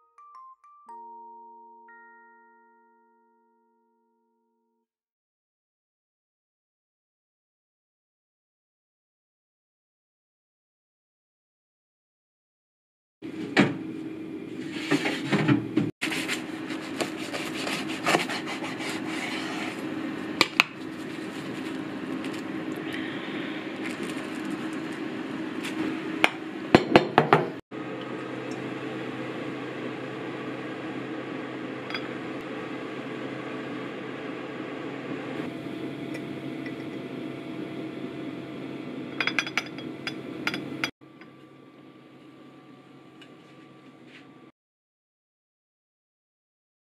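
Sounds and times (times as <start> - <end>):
glass jars and utensils clinking: 39.2 - 40.9.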